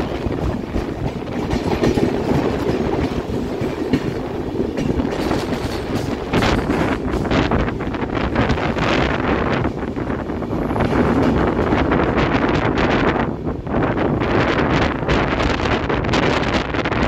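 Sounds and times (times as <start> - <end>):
train wheels clattering on rails: 0.0 - 17.0
sharp clacks: 0.1 - 7.6.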